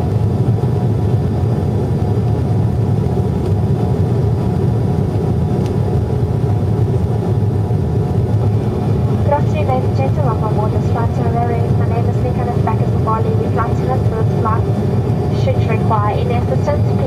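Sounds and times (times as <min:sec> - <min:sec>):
jet engine rumble in cabin: 0:00.0 - 0:17.0
faint even hum: 0:06.8 - 0:17.0.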